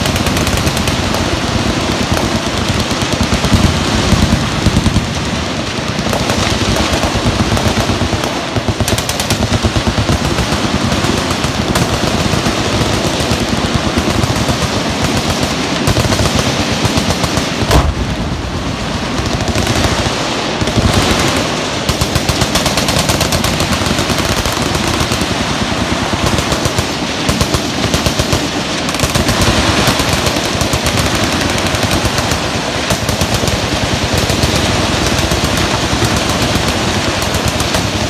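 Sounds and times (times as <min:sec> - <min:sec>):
machine gun fire: 0:00.0 - 0:38.0
loud bang: 0:17.6 - 0:18.6.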